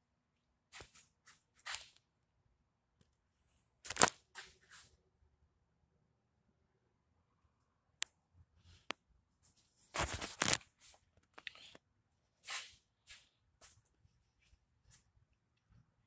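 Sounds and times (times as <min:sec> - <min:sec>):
rough rustling of camera: 0:09.9 - 0:11.7.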